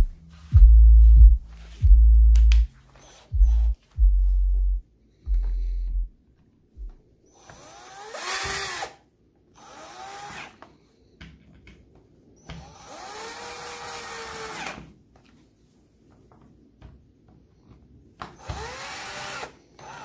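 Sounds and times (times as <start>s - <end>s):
cordless drill driving screws: 7.4s - 9.0s, 9.6s - 10.6s, 12.5s - 14.8s, 18.4s - 20.0s.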